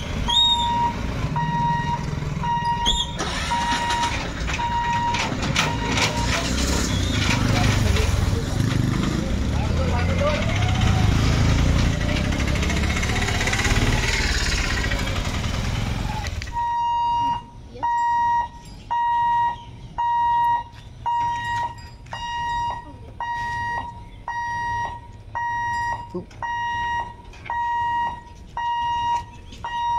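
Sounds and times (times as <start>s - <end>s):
level crossing warning beeps: 0.2s - 6.6s, 16.6s - 29.9s
motorcycles passing: 5.6s - 16.6s.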